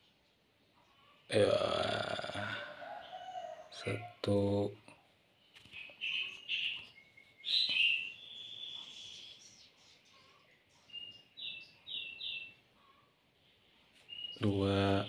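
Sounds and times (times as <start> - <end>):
lovebird chirping: 5.4 - 15.0.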